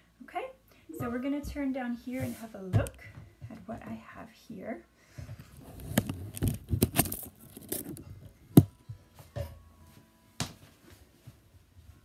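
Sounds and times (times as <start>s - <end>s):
camera handling rubbing and clicking: 5.8s - 8.0s.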